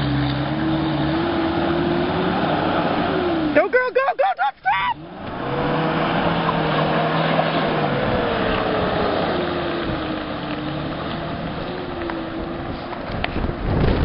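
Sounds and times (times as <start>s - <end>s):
suv engine running: 0.0s - 14.0s
rushing noise through mud: 4.9s - 14.0s.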